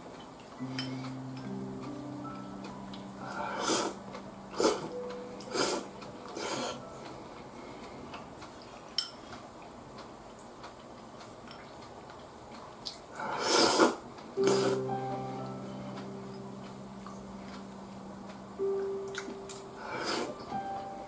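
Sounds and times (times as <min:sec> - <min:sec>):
person slurping noodles: 0:13.2 - 0:14.8.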